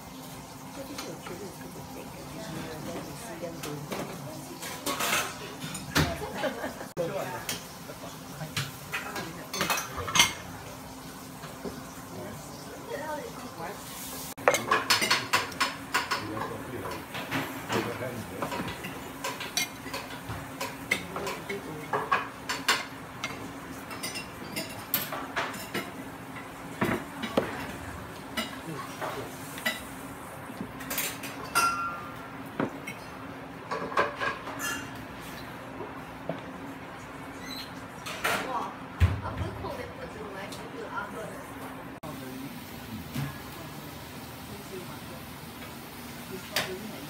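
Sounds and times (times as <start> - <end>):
metal pans and utensils clattering: 0.5 - 30.0, 30.7 - 35.5, 37.4 - 39.8.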